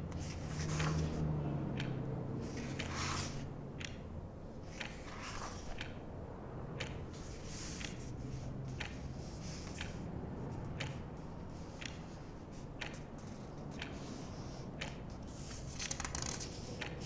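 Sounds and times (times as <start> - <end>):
distant street traffic hum: 0.0 - 17.0
clock ticking: 1.6 - 3.0, 3.6 - 5.0, 5.6 - 15.3, 16.7 - 17.0.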